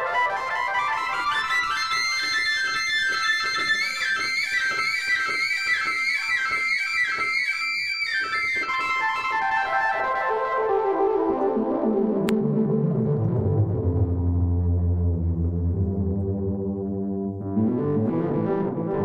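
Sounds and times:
synthesizer solo: 9.2 - 19.0.

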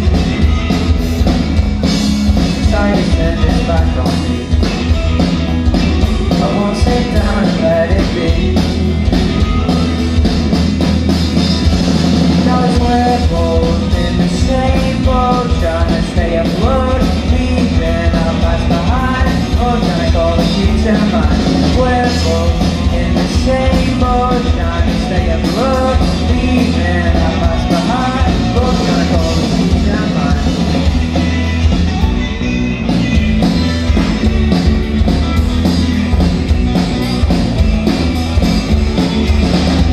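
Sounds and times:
bass guitar: 0.0 - 39.9
drum kit: 0.0 - 39.9
electric guitars: 0.0 - 39.9
lead singer vocals: 2.6 - 4.4, 6.3 - 8.8, 12.3 - 30.8.

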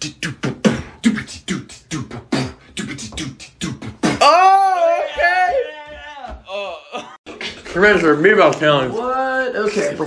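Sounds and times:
beatboxing: 0.0 - 4.6.

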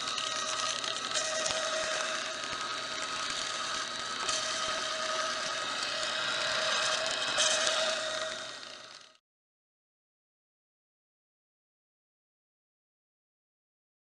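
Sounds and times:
machine motor whirring and humming: 0.0 - 9.2.

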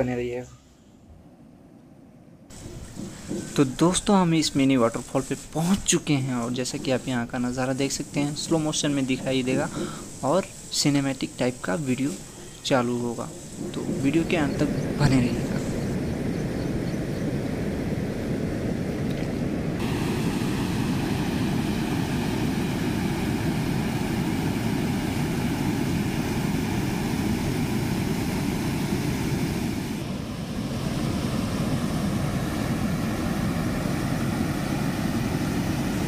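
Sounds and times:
waterfall rushing water: 19.8 - 36.0.

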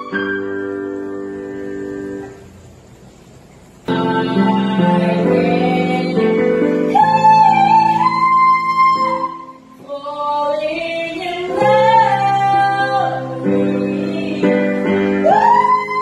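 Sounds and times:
young woman singing high notes: 3.9 - 16.0.

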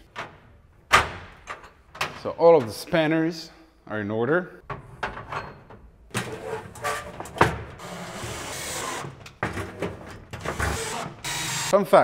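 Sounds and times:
cordless drill driving screws: 7.8 - 9.1, 10.4 - 11.7.

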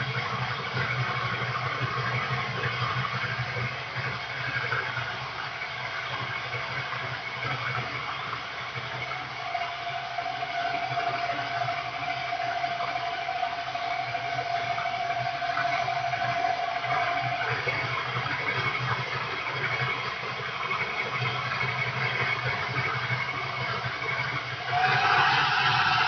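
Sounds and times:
steady high tone: 24.7 - 26.0.

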